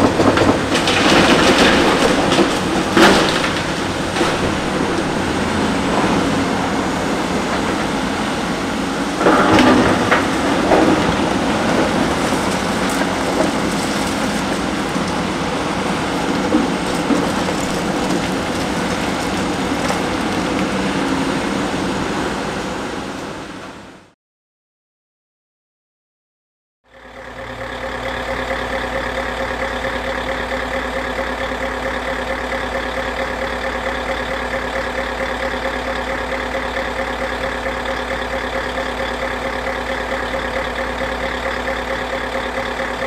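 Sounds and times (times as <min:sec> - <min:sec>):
concrete crunching and crashing: 0:00.0 - 0:21.2
diesel engine running: 0:00.0 - 0:24.1, 0:26.9 - 0:43.0.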